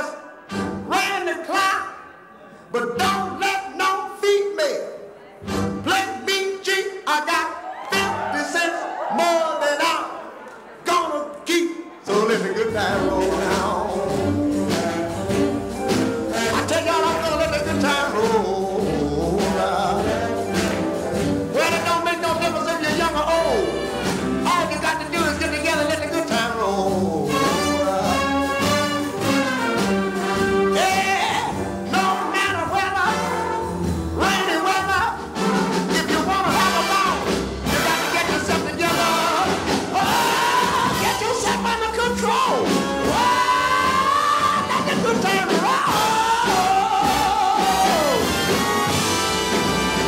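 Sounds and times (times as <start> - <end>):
swing jazz with horns: 0.4 - 1.7, 5.4 - 6.6, 12.1 - 50.0.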